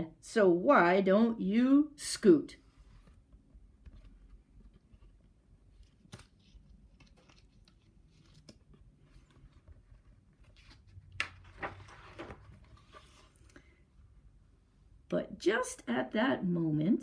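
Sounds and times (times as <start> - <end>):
page rustling and flicking: 5.8 - 9.8, 10.4 - 13.6.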